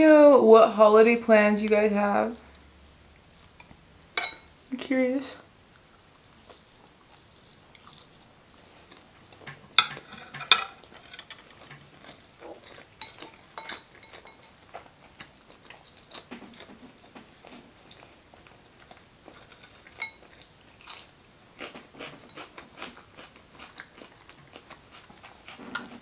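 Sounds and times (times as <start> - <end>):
soft chewing: 1.7 - 4.4, 5.6 - 26.0
dishes clinking: 4.2 - 4.5, 9.4 - 12.2, 13.0 - 14.6, 19.4 - 20.3.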